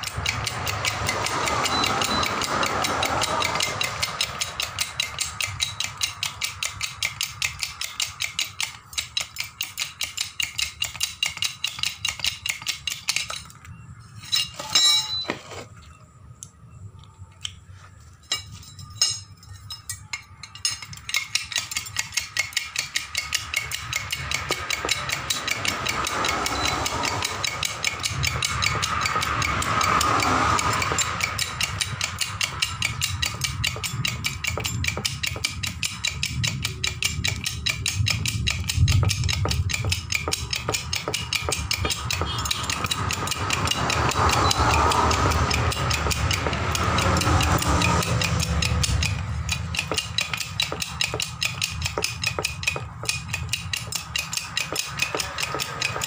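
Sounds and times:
metal knocks: 0.0 - 13.6, 18.2 - 56.0
jack pump clicking: 0.0 - 15.7, 18.3 - 56.0.

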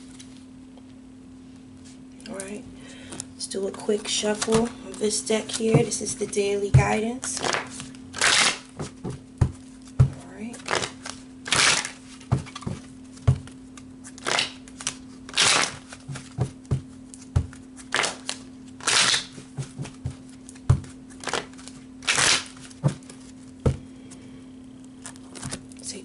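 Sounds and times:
faint steady hum: 0.0 - 26.0
cards shuffling: 3.8 - 23.8, 25.0 - 25.8
cards tapping: 4.0 - 23.9.

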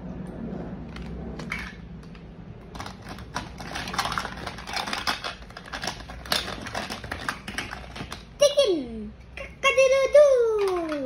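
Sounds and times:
plastic toy pieces clattering: 1.0 - 8.5, 10.4 - 11.0.

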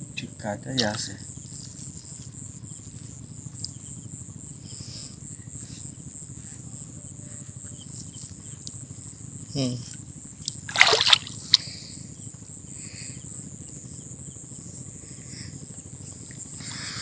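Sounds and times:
high-pitched insect chorus: 0.0 - 17.0
low steady rumble: 0.0 - 17.0
faint ticks: 0.2 - 3.9.

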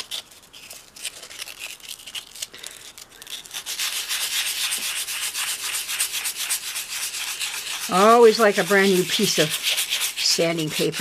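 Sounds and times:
hand sanding with sandpaper: 3.2 - 11.0.

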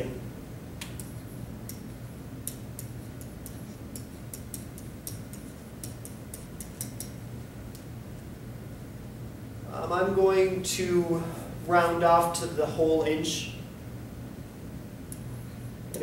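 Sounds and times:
low room hum: 0.0 - 16.0
stylus tapping whiteboard: 1.7 - 7.2.

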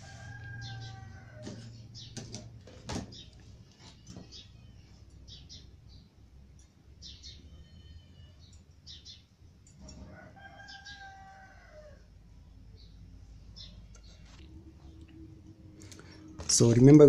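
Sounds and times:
rooster crowing: 0.0 - 1.9, 9.8 - 12.2.

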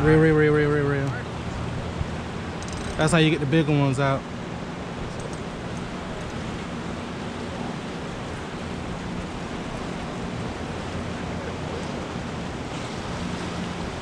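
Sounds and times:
whitewater rushing: 5.6 - 14.0.

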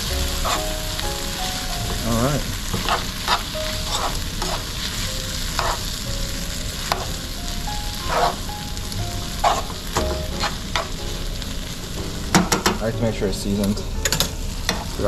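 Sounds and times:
pasta sauce sizzling in a pan: 0.0 - 15.0
utensil scraping a pan: 0.1 - 5.9, 8.0 - 8.5, 9.3 - 11.0.

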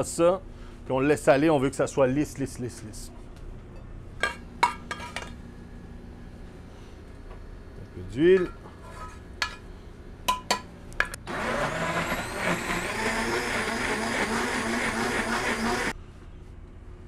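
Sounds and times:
blender motor whining: 11.2 - 15.9.

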